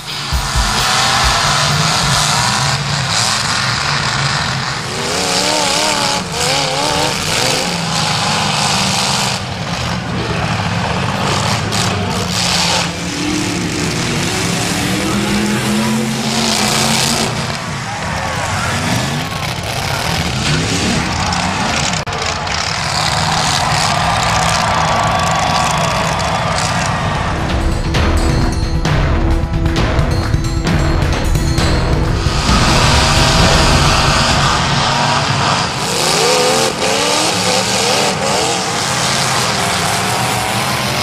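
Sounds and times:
cars crashing together: 0.0s - 28.6s, 29.2s - 41.0s
car engines revving: 0.0s - 41.0s.

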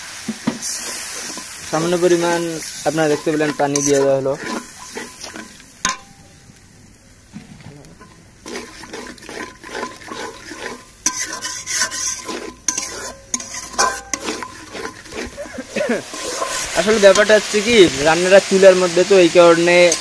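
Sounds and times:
paste sizzling in oil: 0.0s - 6.6s, 7.9s - 20.0s
metal spatula scraping a pan: 0.6s - 6.1s, 8.0s - 18.0s.

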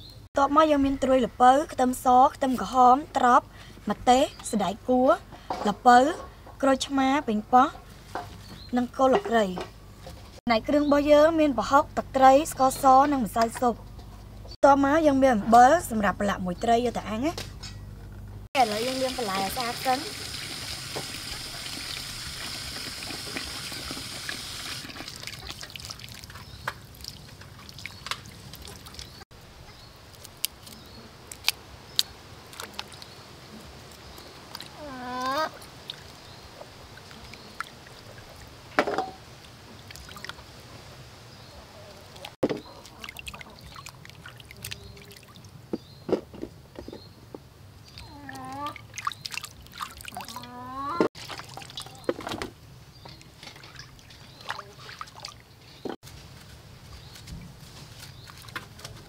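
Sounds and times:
tap water pouring into basin: 18.6s - 29.0s
hands rubbing vegetables in water: 18.6s - 29.2s
small splashes: 18.6s - 29.2s, 30.1s - 40.5s, 42.0s - 45.6s, 47.8s - 50.6s, 51.2s - 55.8s, 57.2s - 59.0s.

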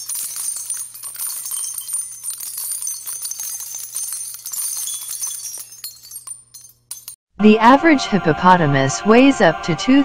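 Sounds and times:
jingling bells: 0.0s - 7.2s.

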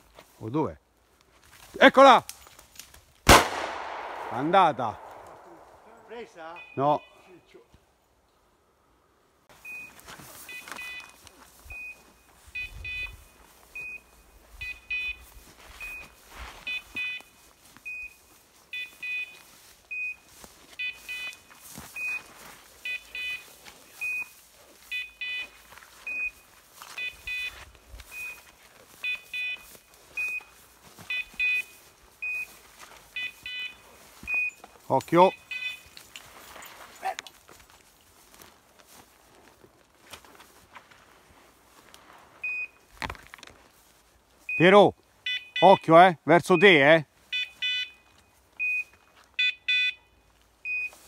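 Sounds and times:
beeper collar beeping: 5.4s - 7.5s, 9.6s - 17.3s, 17.9s - 24.3s, 24.9s - 30.5s, 31.1s - 36.1s, 44.5s - 51.0s
faint rustling of brush: 9.5s - 44.5s.

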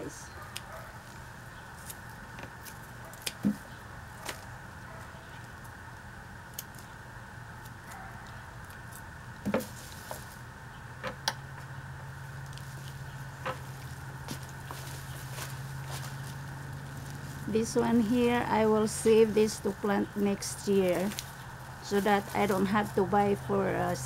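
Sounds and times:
low background hum: 0.0s - 24.0s
pruning shears snipping: 1.8s - 3.6s, 19.1s - 24.0s.

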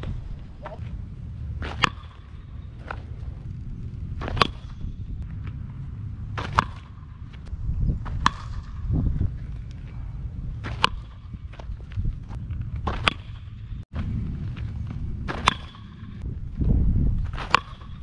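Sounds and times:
metal bat pinging balls: 1.6s - 3.0s, 10.6s - 11.4s.

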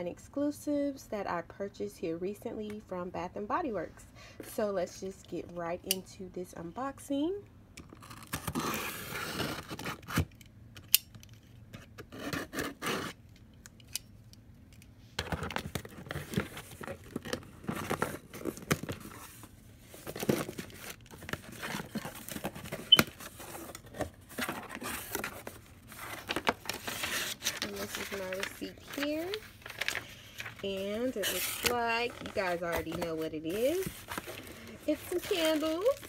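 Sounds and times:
packing tape tearing: 7.8s - 10.4s, 20.0s - 36.0s
paper rustling: 15.3s - 36.0s.

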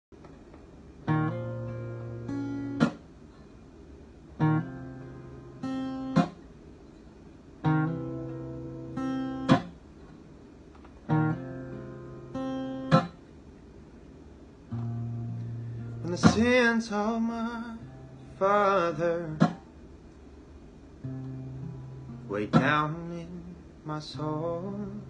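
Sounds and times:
acoustic guitar strumming: 1.0s - 3.1s, 4.4s - 6.5s, 7.6s - 9.8s, 11.0s - 13.2s, 14.7s - 19.7s, 21.0s - 23.5s.

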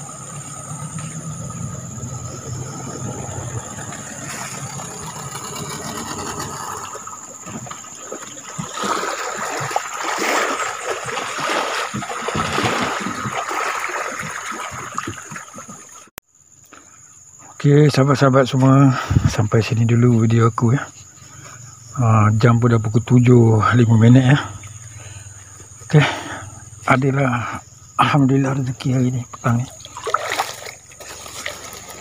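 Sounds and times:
outboard motor running: 0.0s - 16.0s, 23.5s - 27.8s, 29.0s - 32.0s
water noise: 0.0s - 16.2s, 17.4s - 32.0s
scraping and knocks: 3.6s - 8.2s.

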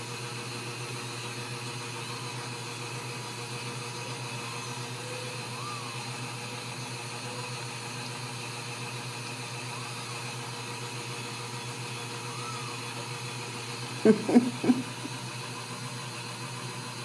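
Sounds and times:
appliance hum with hiss: 0.0s - 17.0s
faint rising and falling squeak: 4.3s - 6.1s, 12.0s - 12.9s.

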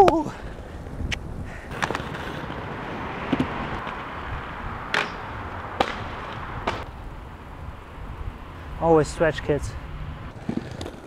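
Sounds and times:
inline skates clacking: 0.0s - 7.0s, 10.3s - 11.0s
wind on microphone: 0.0s - 10.6s.

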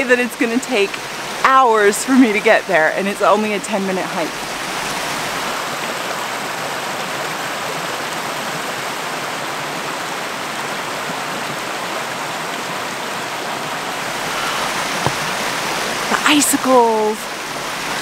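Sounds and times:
fast-flowing stream rushing: 0.0s - 18.0s.

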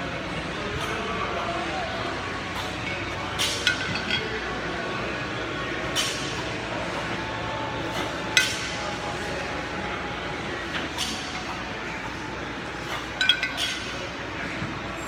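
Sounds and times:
steady background hum: 0.0s - 15.0s
kettlebells clinking: 12.9s - 14.1s.

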